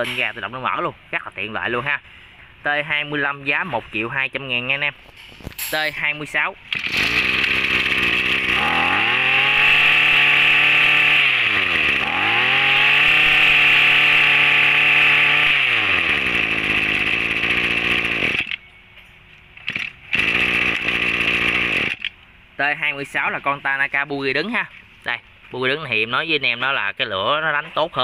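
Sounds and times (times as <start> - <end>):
brush cutter engine buzzing: 6.6 - 18.6, 19.6 - 22.2.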